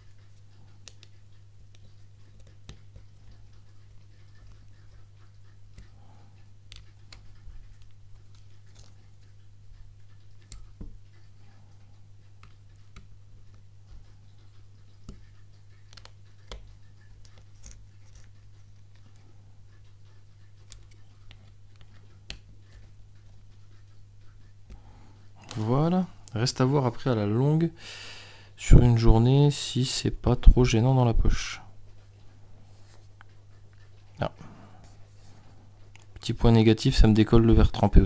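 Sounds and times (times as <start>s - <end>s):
steady low hum: 0.0s - 38.0s
fingers tapping a smartphone: 0.1s - 25.3s.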